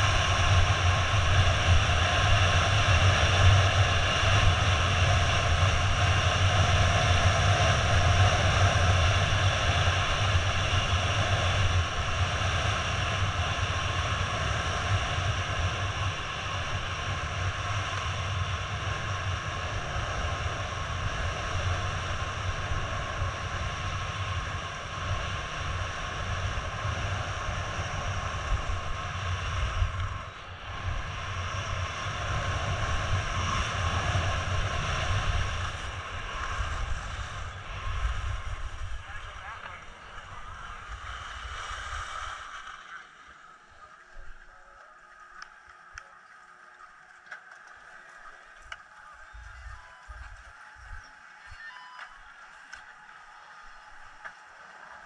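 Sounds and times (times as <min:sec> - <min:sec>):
wind buffeting microphone: 0:00.0 - 0:42.7.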